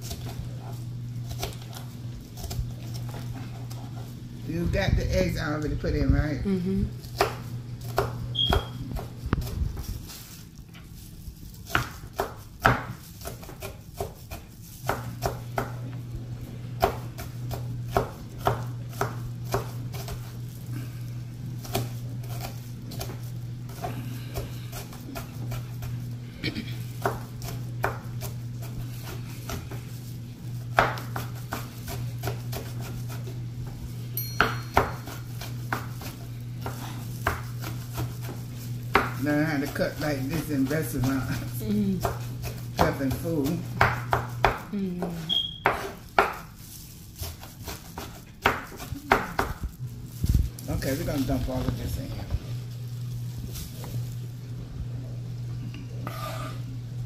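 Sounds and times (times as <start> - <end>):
knife chopping on wooden board: 7.1 - 9.5, 11.6 - 15.9, 16.8 - 20.3, 27.0 - 29.8, 30.7 - 33.3, 34.4 - 39.8, 41.0 - 46.5, 47.2 - 49.6.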